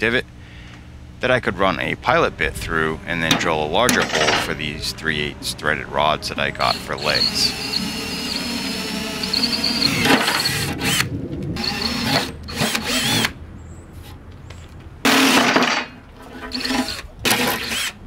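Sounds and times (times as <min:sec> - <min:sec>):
cordless drill boring steel: 0:06.2 - 0:11.0, 0:11.6 - 0:13.4, 0:16.4 - 0:18.0.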